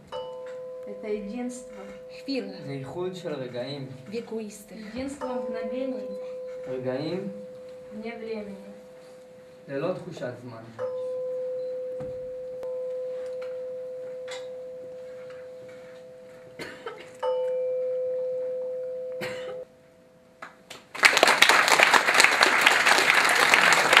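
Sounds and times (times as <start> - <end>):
audience applause: 20.8 - 24.0.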